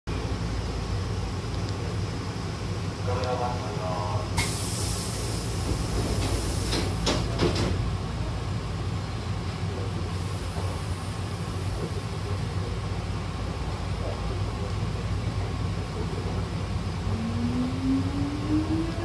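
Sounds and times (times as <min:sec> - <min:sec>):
stopped train humming: 0:00.1 - 0:19.0
air hiss from door engine: 0:04.4 - 0:07.7
train doors knocking shut: 0:05.6 - 0:08.0.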